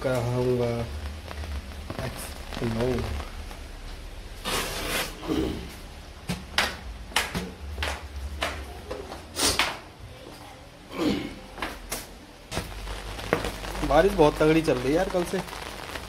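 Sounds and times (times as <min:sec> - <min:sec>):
steady low rumble: 0:00.0 - 0:04.5, 0:05.1 - 0:08.8, 0:12.3 - 0:16.0.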